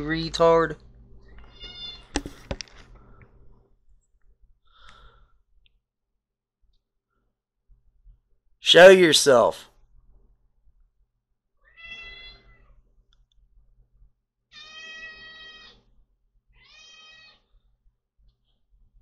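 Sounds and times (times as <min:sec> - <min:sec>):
cat meowing: 0:01.4 - 0:02.1, 0:11.6 - 0:12.8, 0:14.5 - 0:15.9, 0:16.5 - 0:17.5.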